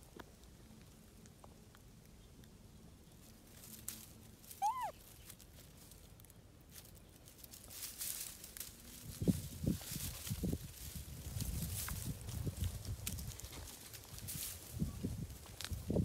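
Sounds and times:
dry leaves and twigs rustling: 0.0s - 16.0s
monkey squeaky call: 4.6s - 5.0s.

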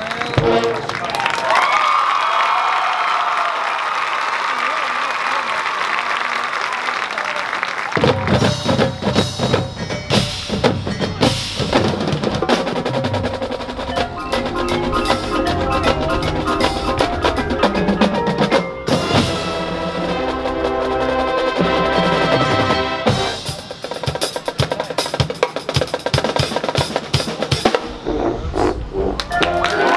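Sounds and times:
crowd applause: 0.0s - 9.0s, 12.7s - 23.6s, 29.1s - 29.9s
marimbas and drums: 8.0s - 28.2s, 29.2s - 29.9s
sustained wind chords: 12.2s - 23.4s.

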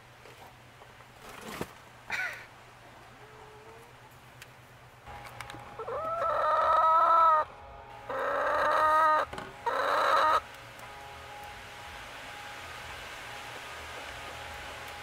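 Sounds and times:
hen calling loudly: 5.8s - 10.5s.

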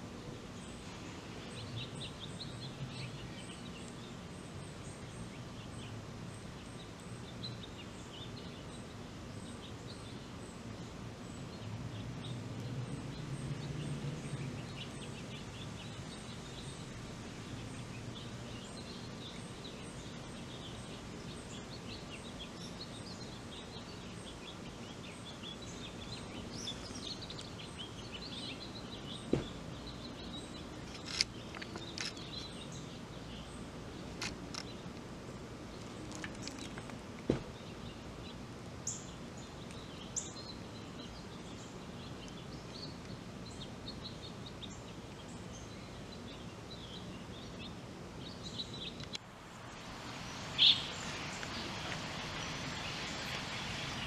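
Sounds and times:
birds chirping: 0.0s - 54.0s.

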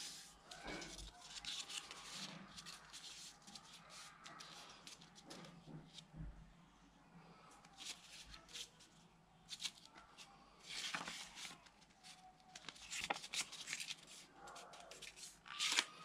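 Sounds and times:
paper rustling and crackling: 0.0s - 6.0s, 10.6s - 16.0s.

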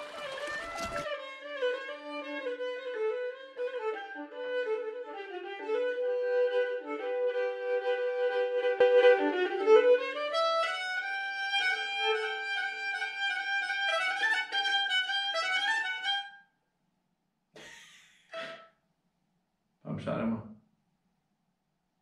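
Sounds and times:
bowed lyra melody: 0.0s - 16.3s.

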